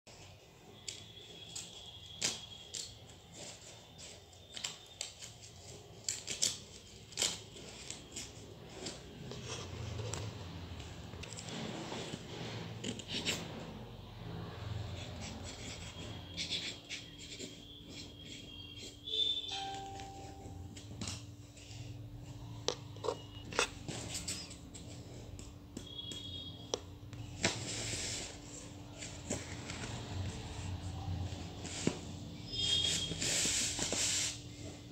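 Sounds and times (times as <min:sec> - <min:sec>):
paper pages rustling: 0:27.3 - 0:34.9.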